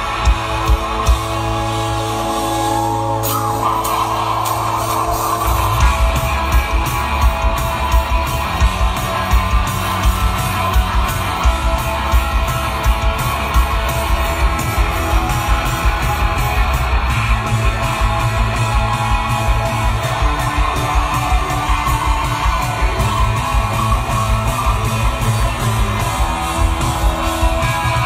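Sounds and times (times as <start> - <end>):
drums steady beat: 0.0 - 28.0
electric guitars: 0.0 - 28.0.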